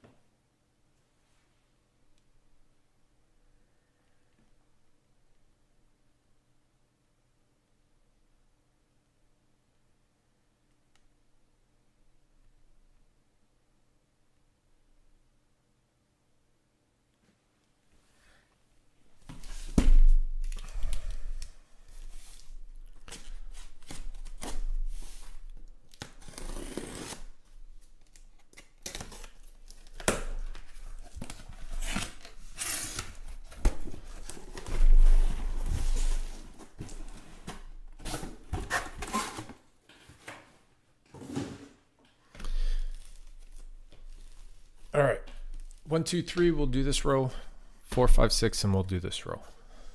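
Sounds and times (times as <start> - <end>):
tape and cardboard ripping: 22.2 - 39.6
rustling and scraping of boxes: 30.6 - 41.9.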